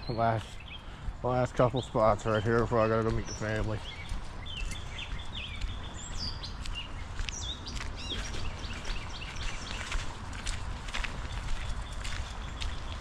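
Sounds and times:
birds chirping: 0.0 - 13.0
steady low rumble: 0.0 - 13.0.

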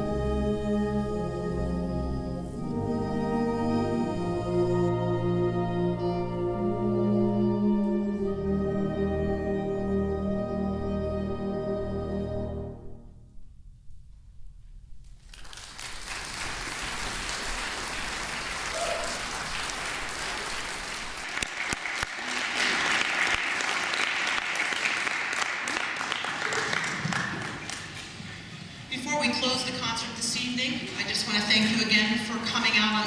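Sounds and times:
audience applauding: 15.2 - 28.4.

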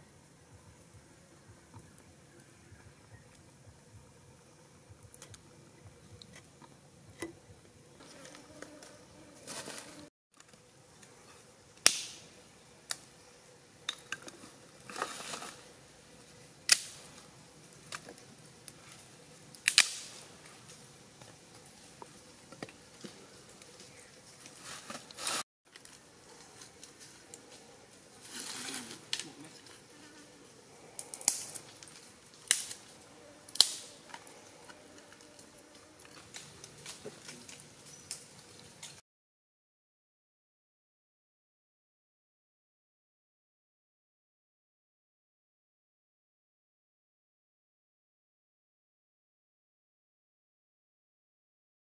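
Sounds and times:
dry leaves rustling: 9.4 - 10.1, 14.3 - 15.8, 16.7 - 30.2, 30.8 - 39.0
dry twigs snapping: 11.8 - 12.2, 16.7 - 17.1, 19.6 - 20.2, 31.0 - 32.9, 33.5 - 34.4.

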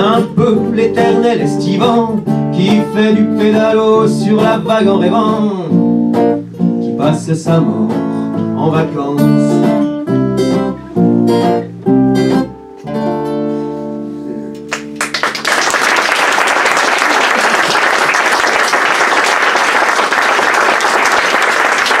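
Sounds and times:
audience applause: 14.7 - 22.0.

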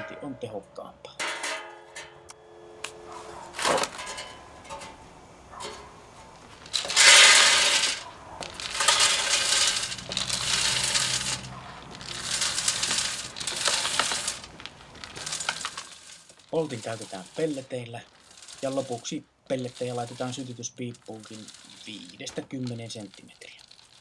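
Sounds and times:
pellets rattling against metal: 3.6 - 4.9, 6.5 - 24.0.

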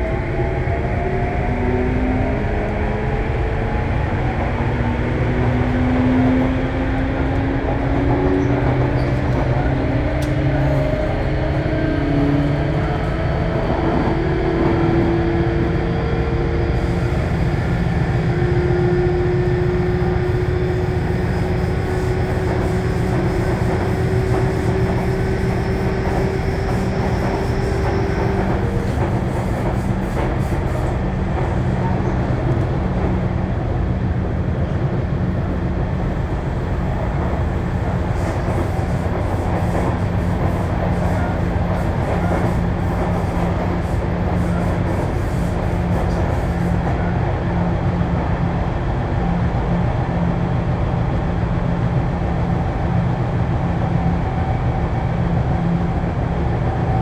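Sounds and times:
train wheel and rail rumble: 0.0 - 57.0.

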